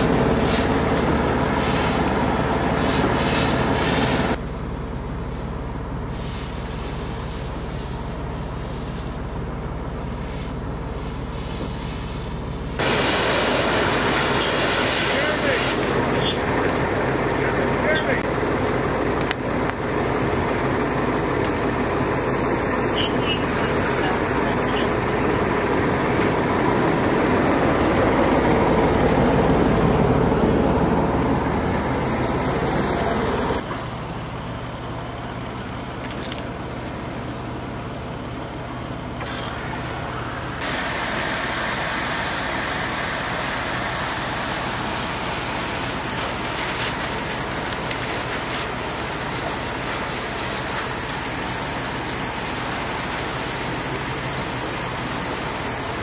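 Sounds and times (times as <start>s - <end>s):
fire hose spraying water: 0.0s - 4.4s, 5.2s - 24.8s, 39.2s - 56.0s
fire burning: 0.0s - 56.0s
fire engine running: 0.0s - 56.0s.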